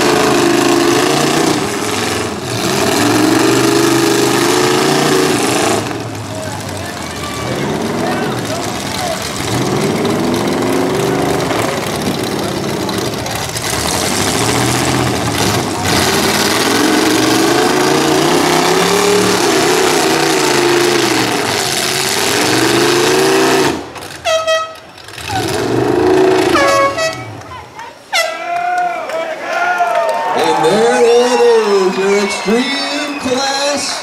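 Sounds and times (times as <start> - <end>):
car engines revving hard: 0.0 - 27.6
short horn blast: 24.2 - 24.8, 26.4 - 27.4, 28.1 - 28.4.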